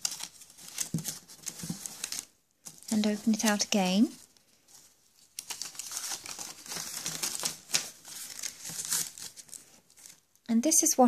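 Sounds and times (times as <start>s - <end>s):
paper rustling and crackling: 0.0s - 10.4s.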